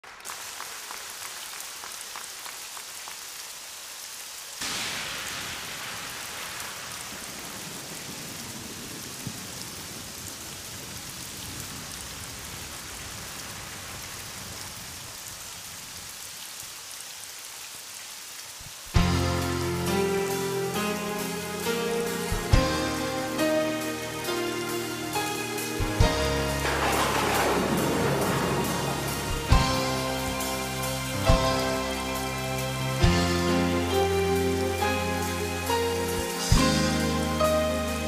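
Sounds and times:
steady rain falling: 0:00.0 - 0:38.0.

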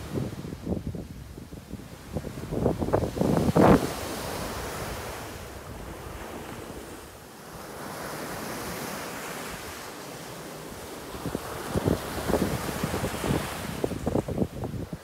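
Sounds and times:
wind rumbling on microphone: 0:00.0 - 0:07.2, 0:10.7 - 0:15.0
small waves breaking on sand: 0:00.0 - 0:15.0.

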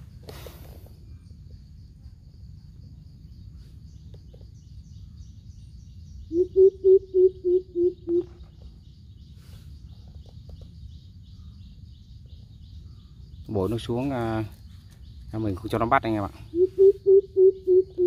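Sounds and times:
bird deep hoots: 0:06.2 - 0:08.7, 0:16.3 - 0:18.0.

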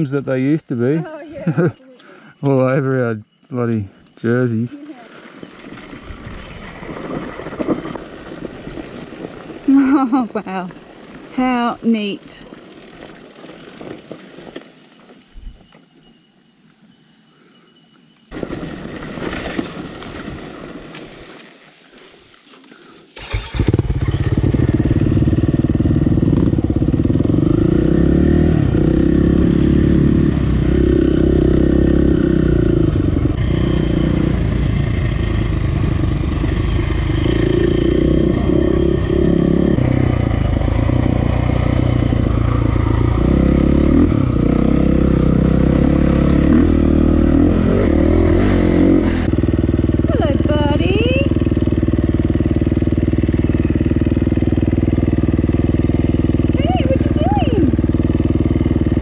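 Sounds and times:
dirt bike engine revving: 0:23.2 - 0:59.0.

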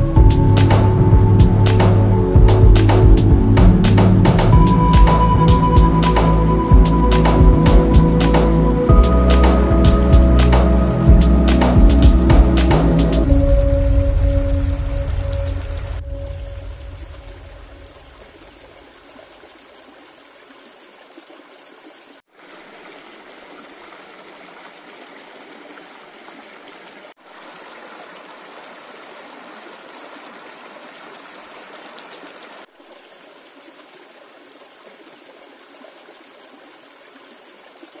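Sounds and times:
music: 0:00.0 - 0:17.4
stream running over rocks: 0:00.0 - 0:38.0.

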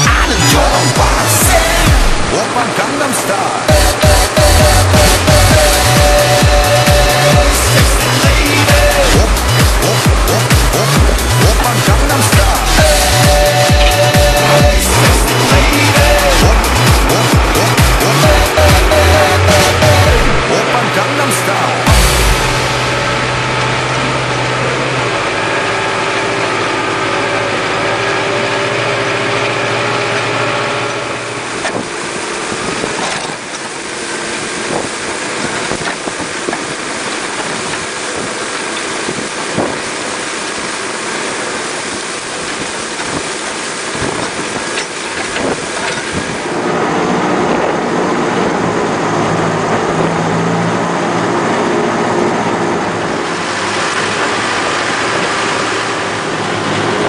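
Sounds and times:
tractor engine running under load: 0:00.0 - 0:57.0
plough turning over soil: 0:25.0 - 0:48.8.

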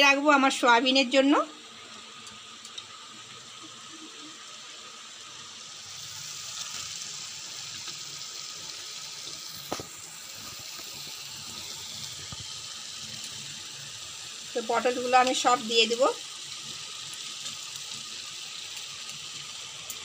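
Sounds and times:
food sizzling in a frying pan: 0:00.0 - 0:20.0.

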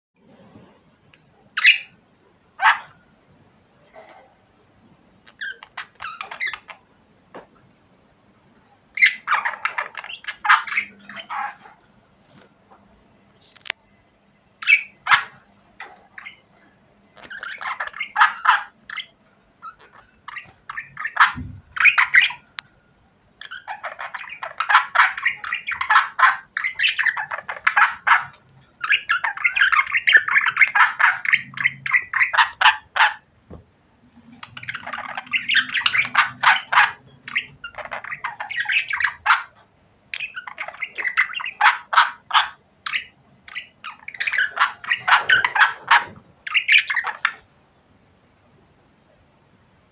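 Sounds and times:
budgerigars chattering: 0:01.6 - 0:02.0, 0:02.6 - 0:02.9, 0:05.4 - 0:06.8, 0:09.0 - 0:11.8, 0:14.6 - 0:16.5, 0:17.2 - 0:22.6, 0:23.4 - 0:33.3, 0:34.3 - 0:47.5.

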